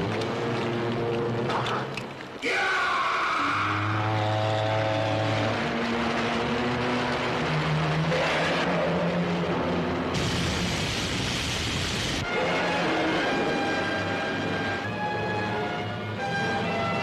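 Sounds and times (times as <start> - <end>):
man screaming: 2.4 - 4.5
loud rushing noise: 4.1 - 13.5.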